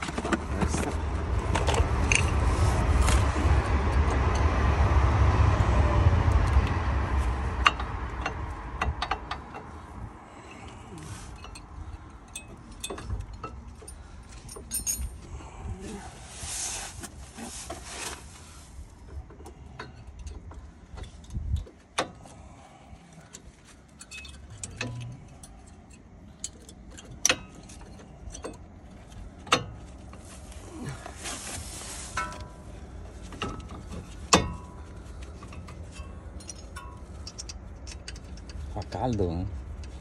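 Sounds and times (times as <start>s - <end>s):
metal tools clinking: 9.0s - 15.3s, 23.8s - 31.0s, 33.4s - 39.2s.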